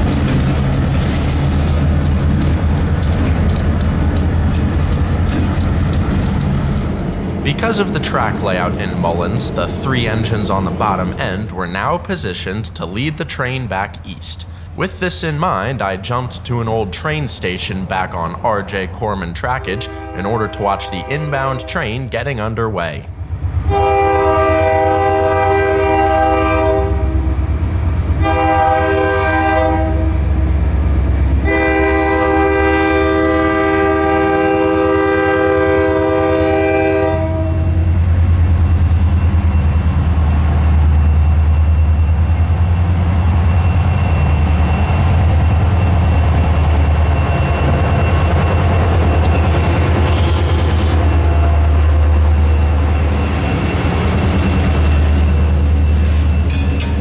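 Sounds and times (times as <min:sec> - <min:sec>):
locomotive engines rumbling: 0:00.0 - 0:57.0
locomotive air horn blasts: 0:19.6 - 0:21.7, 0:23.7 - 0:27.2, 0:28.2 - 0:30.2, 0:31.4 - 0:37.8.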